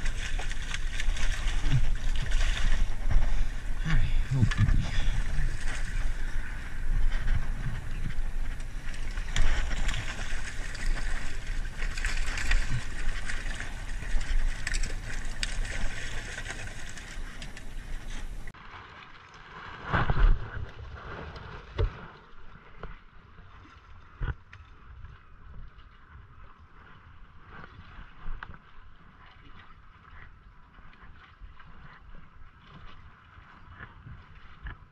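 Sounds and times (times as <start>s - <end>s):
wind on microphone: 0.0s - 18.5s
fish splashing in water: 0.0s - 19.0s.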